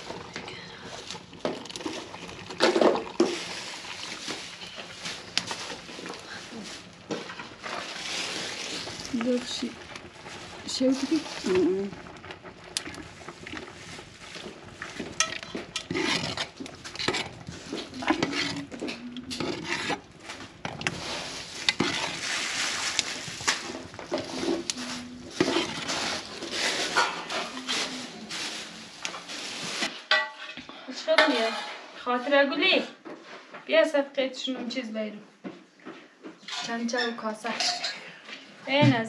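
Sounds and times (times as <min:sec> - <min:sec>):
metal ladle scraping a pot: 0:12.8 - 0:30.6, 0:31.2 - 0:31.9, 0:36.5 - 0:38.0.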